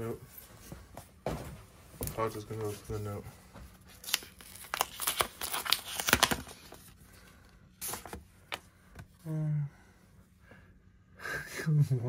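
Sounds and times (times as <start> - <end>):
paper envelope rustling: 3.7 - 7.0, 7.8 - 8.6.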